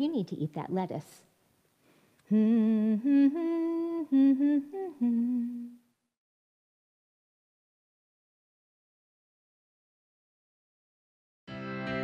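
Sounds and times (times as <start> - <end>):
woman humming a tune: 2.3 - 5.9.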